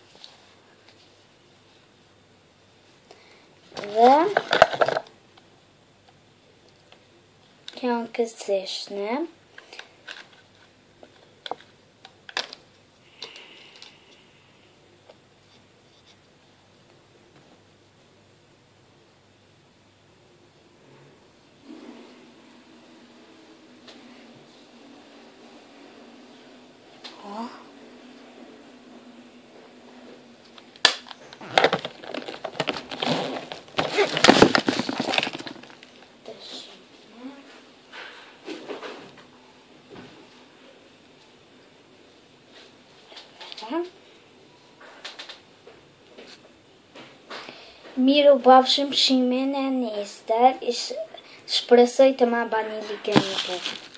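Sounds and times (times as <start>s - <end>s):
rustling and crinkling handling: 3.7s - 5.1s, 31.2s - 36.4s, 52.5s - 53.9s.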